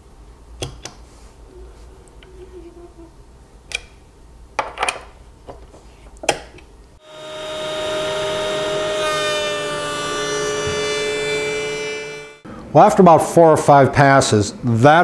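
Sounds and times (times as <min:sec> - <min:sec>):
router whining while cutting wood: 0:07.0 - 0:12.4.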